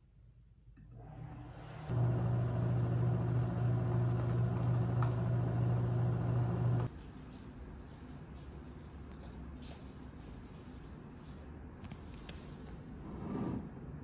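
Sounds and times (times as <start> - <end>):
machine humming: 1.0 - 6.9.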